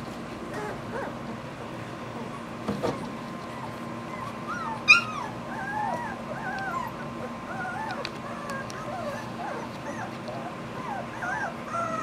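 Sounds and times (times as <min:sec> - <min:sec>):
puppies whimpering and squeaking: 0:00.4 - 0:01.3, 0:02.0 - 0:12.0
puppy yelp: 0:00.5 - 0:01.2, 0:03.5 - 0:12.0.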